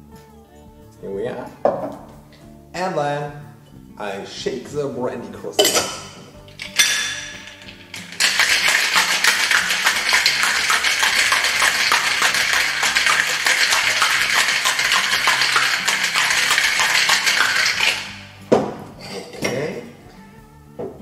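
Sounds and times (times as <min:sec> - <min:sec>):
ice rattling in cocktail shaker: 0:05.6 - 0:18.3.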